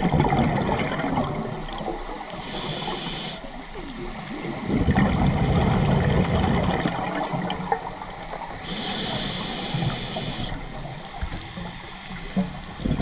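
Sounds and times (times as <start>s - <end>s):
exhaled air bubbling underwater: 0.0s - 13.0s
regulator hiss: 1.6s - 3.6s, 8.6s - 12.4s.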